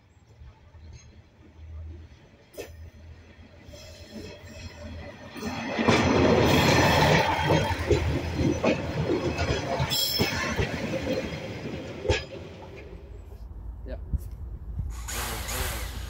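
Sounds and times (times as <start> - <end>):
diesel railcar passing: 0.0 - 16.0
wheels clicking on rails: 3.8 - 13.1.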